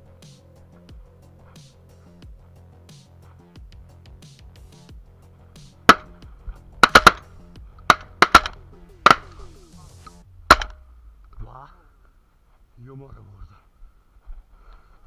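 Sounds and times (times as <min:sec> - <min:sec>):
background music: 0:00.0 - 0:12.0
shotgun shots: 0:05.9 - 0:06.2, 0:06.8 - 0:07.3, 0:07.9 - 0:09.5, 0:10.5 - 0:10.8.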